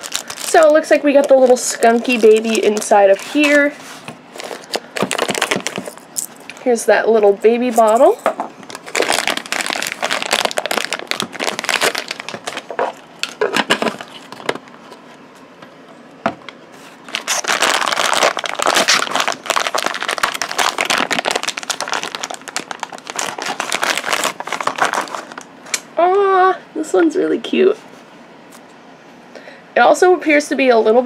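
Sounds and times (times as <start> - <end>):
foil packaging crinkling: 0.0 - 6.7, 7.6 - 15.1, 16.8 - 25.5.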